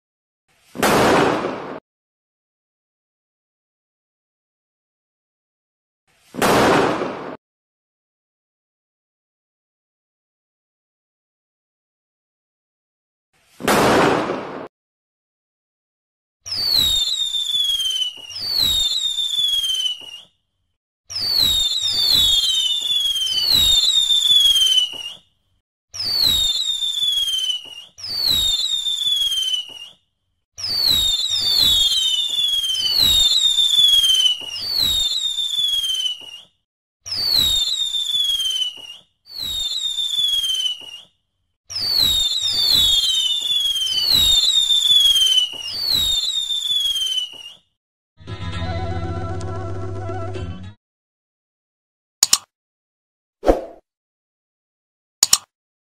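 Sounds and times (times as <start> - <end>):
firework rockets bursting: 0.7 - 1.8, 6.2 - 7.4, 13.6 - 14.7, 16.5 - 20.3, 21.1 - 25.2, 26.0 - 30.0, 30.6 - 36.5, 37.1 - 41.1, 41.7 - 47.6
firework crackling and pops: 6.2 - 7.4, 16.5 - 20.3, 21.2 - 25.2, 26.0 - 30.0, 30.6 - 36.5, 37.1 - 41.1, 41.8 - 47.6
whistles falling in pitch: 16.5 - 20.3, 21.1 - 25.3, 26.0 - 30.0, 30.6 - 47.8.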